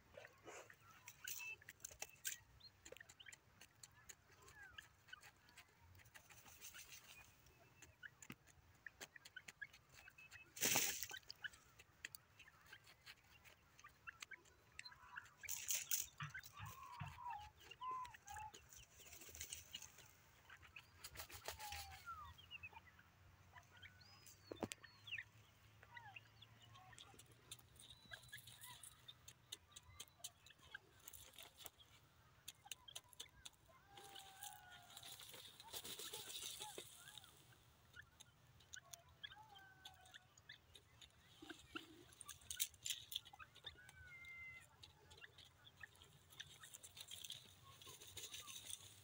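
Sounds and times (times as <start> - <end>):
faint ticks and scratches: 0.0 - 22.4, 23.5 - 49.0
bird clucking calls: 0.0 - 49.0
rustling: 46.4 - 49.0.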